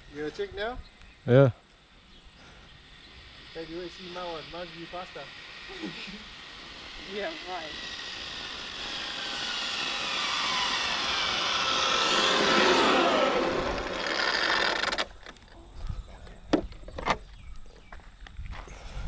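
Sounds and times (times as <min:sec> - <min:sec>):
electric motor whine: 0:01.7 - 0:15.5.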